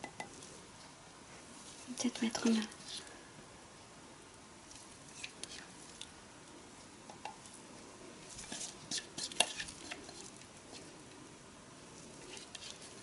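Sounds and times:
spatula tapping glass: 0.0s - 0.4s
spatula scraping glass bowl: 8.5s - 10.3s.

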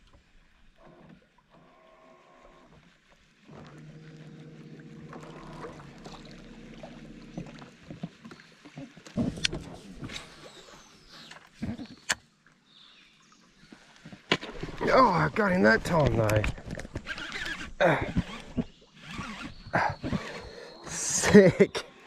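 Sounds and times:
fishing reel whirring: 3.5s - 7.7s, 17.0s - 21.1s.

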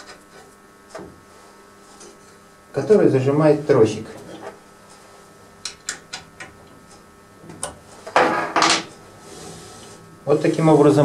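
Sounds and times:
tool scraping: 9.1s - 10.1s.

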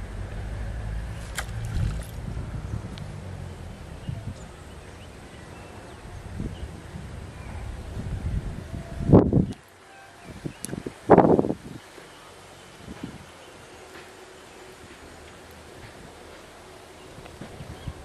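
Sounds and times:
wind rumble on microphone: 0.0s - 11.9s, 12.8s - 13.4s, 17.0s - 18.0s.

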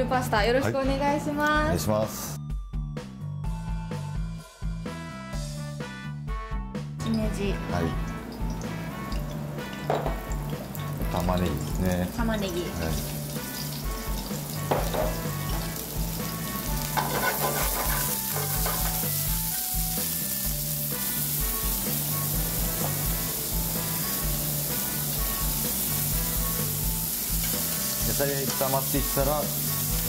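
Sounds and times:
mushrooms sizzling in pan: 7.2s - 30.0s.

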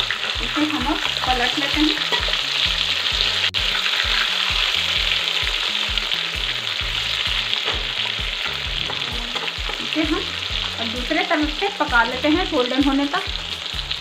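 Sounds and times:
metal spatula turning food: 0.0s - 5.6s, 6.4s - 10.8s
fish sizzling in hot oil: 0.0s - 14.0s.

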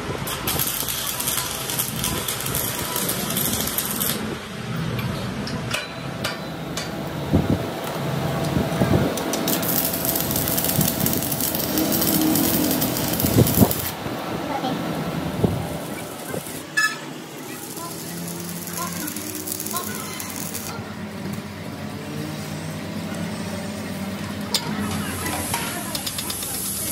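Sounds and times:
arc welding crackle and hiss: 0.0s - 5.0s, 7.0s - 14.2s, 15.3s - 26.9s.

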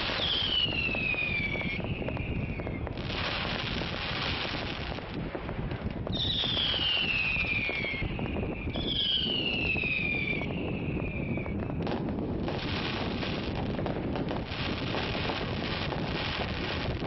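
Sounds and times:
whistling rockets: 0.0s - 5.0s, 5.8s - 17.0s
firework bang: 0.0s - 17.0s
wind rumble on microphone: 0.0s - 17.0s.

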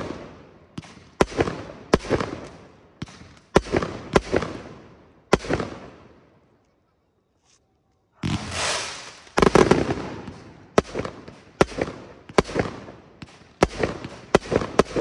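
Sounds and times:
firework shells bursting: 8.2s - 11.0s.

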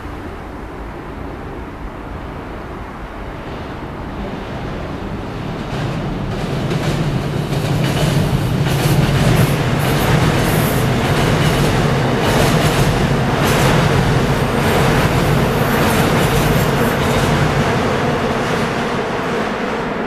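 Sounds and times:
electric train rumbling past: 0.0s - 20.0s
train wheels clicking on rails: 4.8s - 20.0s.

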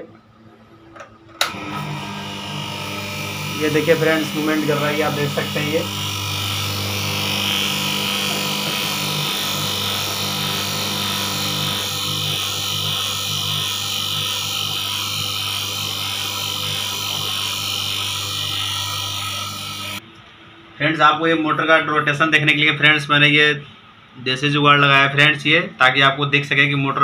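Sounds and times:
electric motor humming and whirring: 1.0s - 20.0s.

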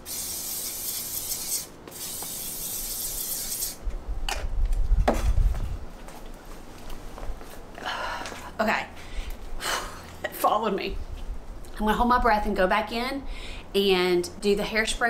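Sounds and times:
aerosol can spraying: 0.0s - 3.8s
low thumps and rumbling: 3.9s - 5.9s.

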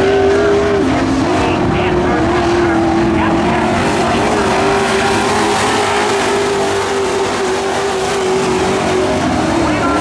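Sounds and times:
racing truck engines droning: 0.0s - 10.0s.

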